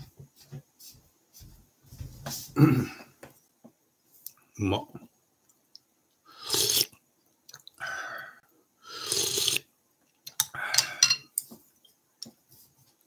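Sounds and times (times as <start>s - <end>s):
person slurping noodles: 6.3s - 7.0s, 8.8s - 9.7s.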